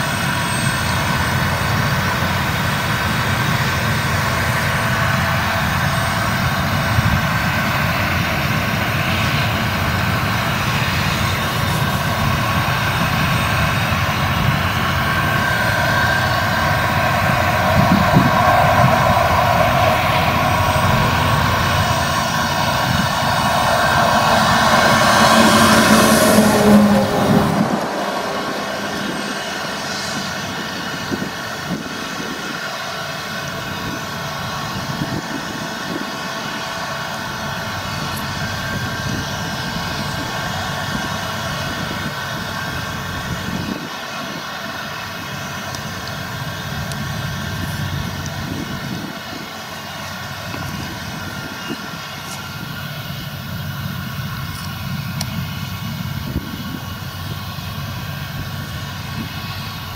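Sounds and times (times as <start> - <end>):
steady tones: 0.0 - 34.9
combine harvester droning: 0.0 - 59.9.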